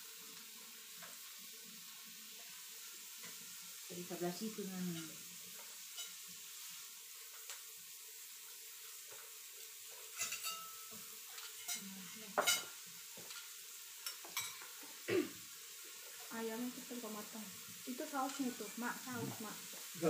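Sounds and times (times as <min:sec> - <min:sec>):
meat sizzling on a grill plate: 0:00.0 - 0:20.0
utensils clinking on dishes: 0:10.1 - 0:14.7.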